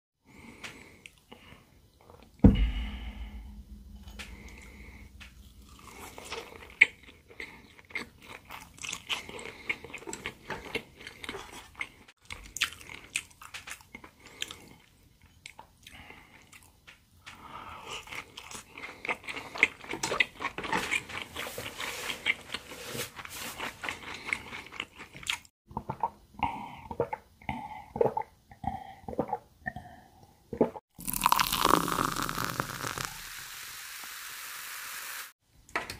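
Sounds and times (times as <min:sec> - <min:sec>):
low thump: 0:02.4 - 0:05.6
crunchy chewing close-up: 0:05.4 - 0:16.8, 0:17.7 - 0:22.6, 0:23.6 - 0:26.1
gulping a drink: 0:25.7 - 0:30.2, 0:31.0 - 0:33.1.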